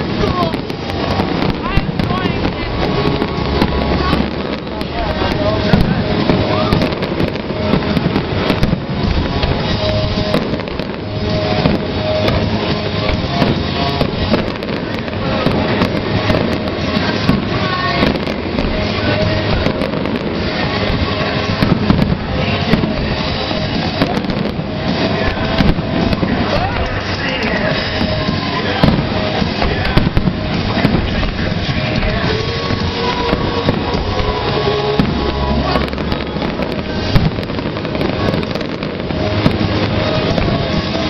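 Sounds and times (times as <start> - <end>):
fireworks bangs and crackles: 0.0 - 41.0
music playing: 0.0 - 41.0.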